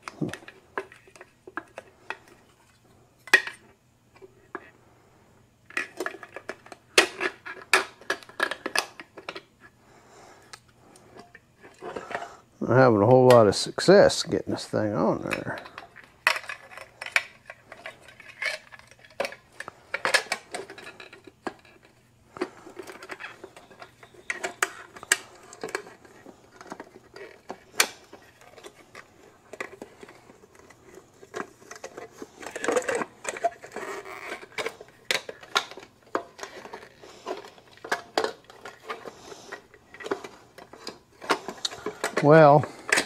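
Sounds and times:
faint steady hum: 0.0s - 43.0s
metal clinks and scrapes: 15.1s - 43.0s.

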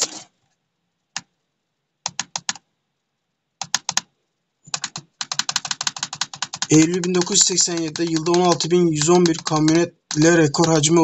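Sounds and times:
keyboard typing: 2.0s - 2.6s, 3.6s - 4.1s, 4.7s - 11.0s.

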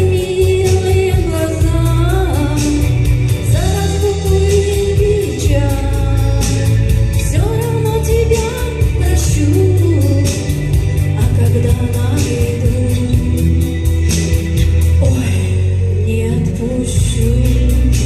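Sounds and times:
backing music with bass and beat: 0.0s - 18.0s
woman singing into microphone: 0.0s - 18.0s.

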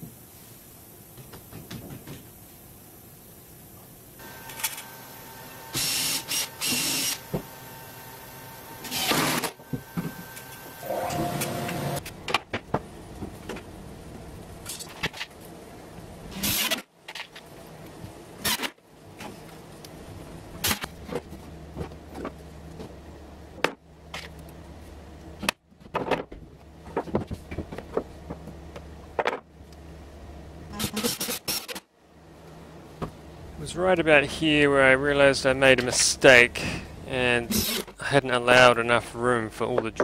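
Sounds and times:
cordless drill driving screws: 5.7s - 7.2s.

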